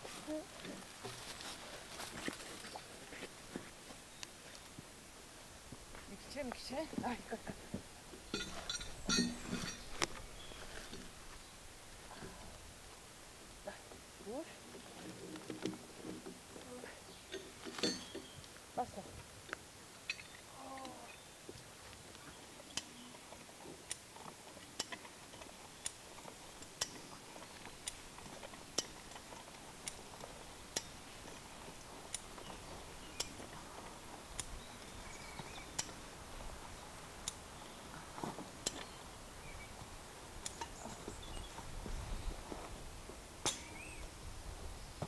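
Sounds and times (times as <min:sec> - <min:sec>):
rustle of movement: 0:00.0 - 0:45.0
farm jack metal clacks: 0:08.3 - 0:10.2, 0:17.3 - 0:18.4.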